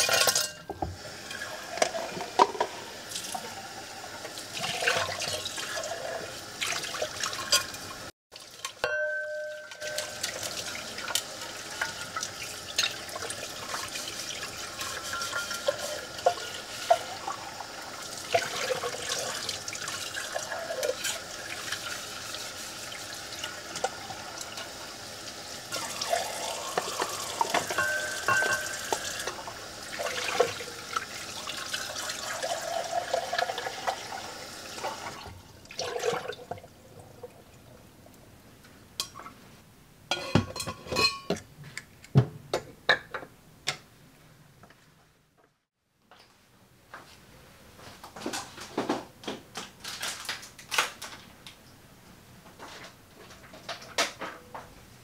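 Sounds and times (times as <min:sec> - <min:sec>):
metal tumbler knocking and clinking: 0:08.8 - 0:10.2, 0:27.5 - 0:28.8.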